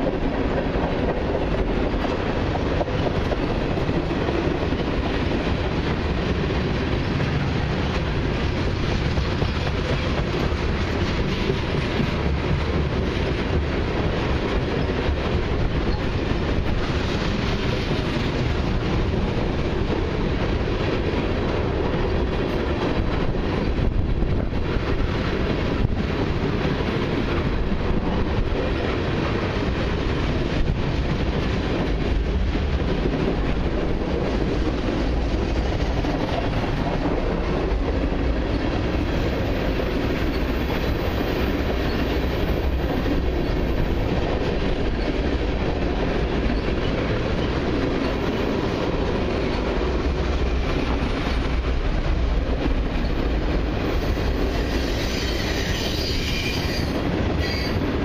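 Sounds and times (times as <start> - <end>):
clickety-clack over rail joints: 0.0 - 58.0
train wheels rumbling on rail: 0.0 - 58.0
high wheel squeal: 54.0 - 57.9.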